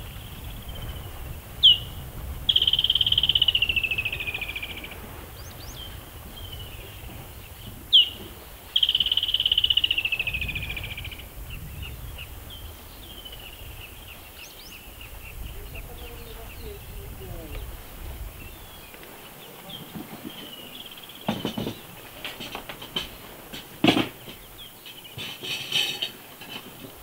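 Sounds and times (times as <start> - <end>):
soft bird calls: 0.0 - 27.0
bird call with falling trill: 2.5 - 5.0, 7.9 - 11.2.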